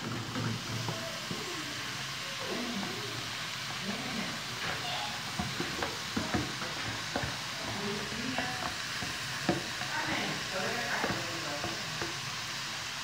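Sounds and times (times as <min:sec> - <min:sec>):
wooden spatula scraping: 0:00.0 - 0:12.3
sausage sizzling in a pot: 0:00.0 - 0:13.0
spatula tapping pot: 0:02.8 - 0:12.4.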